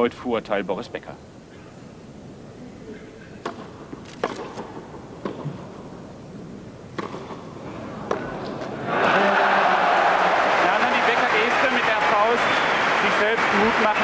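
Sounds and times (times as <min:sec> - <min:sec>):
tennis ball pops: 0:03.4 - 0:05.6, 0:06.9 - 0:07.4.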